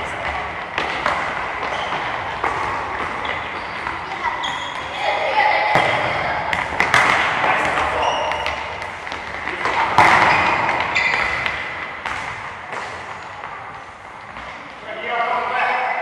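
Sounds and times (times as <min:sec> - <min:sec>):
footballs kicked and bouncing: 0:00.0 - 0:14.9
children's voices: 0:03.8 - 0:06.5.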